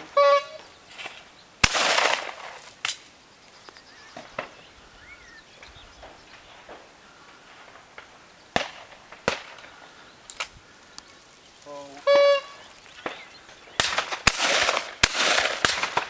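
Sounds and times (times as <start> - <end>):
distant shotgun shots: 1.6 - 3.0, 7.6 - 9.8, 13.0 - 16.0
shotgun shots: 1.6 - 3.0, 8.5 - 9.6, 13.8 - 16.0.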